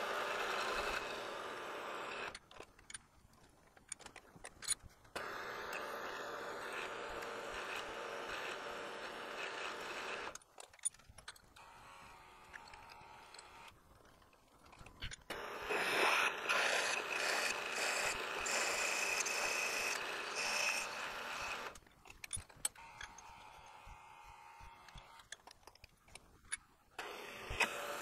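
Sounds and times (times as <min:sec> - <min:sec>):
metal cutting noise: 0:00.0 - 0:02.4, 0:05.2 - 0:10.4, 0:15.3 - 0:25.4, 0:27.0 - 0:28.0
milling machine spindle whine: 0:15.3 - 0:21.8.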